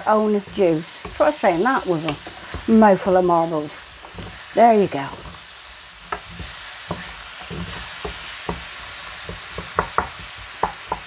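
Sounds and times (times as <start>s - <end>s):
mushrooms sizzling in a frying pan: 0.0s - 11.0s
utensil knocking against pan: 6.9s - 11.0s.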